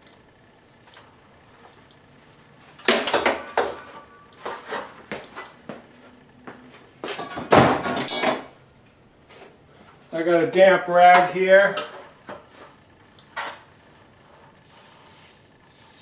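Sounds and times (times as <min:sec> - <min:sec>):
metal tools clanking: 0:07.0 - 0:08.5, 0:11.1 - 0:12.1.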